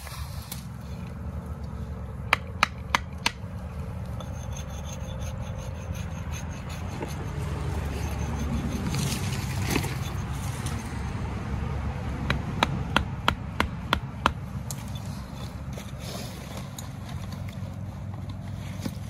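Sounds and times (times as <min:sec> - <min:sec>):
stake scraping and rubbing: 0:00.0 - 0:01.9, 0:03.3 - 0:11.1, 0:14.6 - 0:19.0
hatchet knocking on wooden stake: 0:02.3 - 0:03.4, 0:12.3 - 0:14.4.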